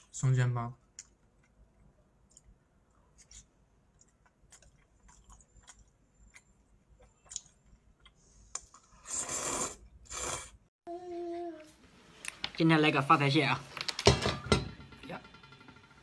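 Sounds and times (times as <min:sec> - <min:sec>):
soft chewing: 0:00.9 - 0:09.0
slurp of noodles: 0:08.9 - 0:10.6.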